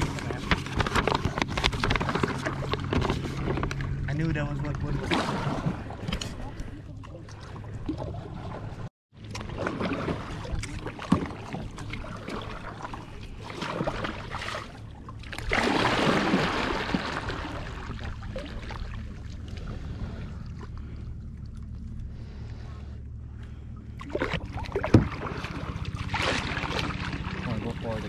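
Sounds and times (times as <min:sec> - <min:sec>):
steady low rumble: 0:00.0 - 0:28.0
paddle strokes splashing in water: 0:05.0 - 0:22.4, 0:24.0 - 0:28.0.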